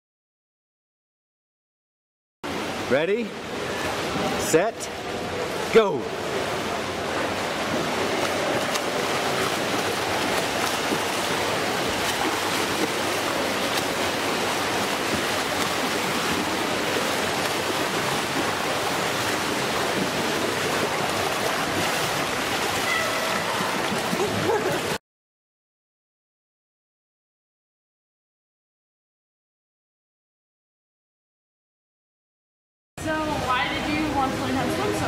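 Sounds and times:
swimmers splashing in pool: 3.4s - 25.0s.

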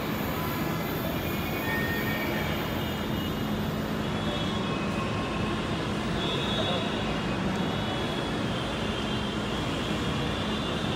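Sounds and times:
wheels squealing: 0.0s - 3.5s
train rumble: 0.0s - 4.1s.

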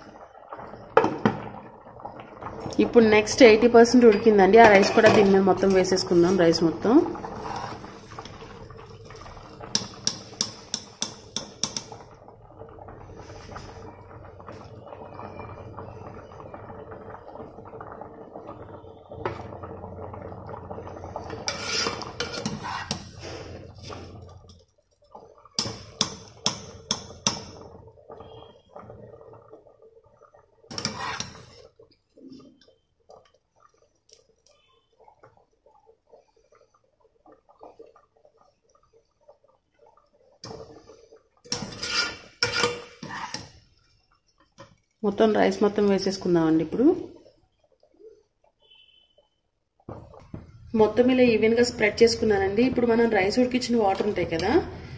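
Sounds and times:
wire ladle knocking pot: 9.7s - 12.0s, 25.6s - 27.6s
ladle scooping rice from water: 21.3s - 24.2s.

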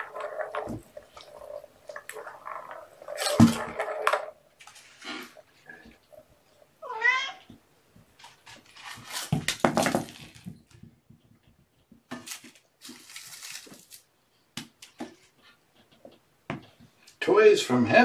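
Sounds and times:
cat meowing: 6.8s - 7.5s
rustling and clattering handling: 8.0s - 14.1s.

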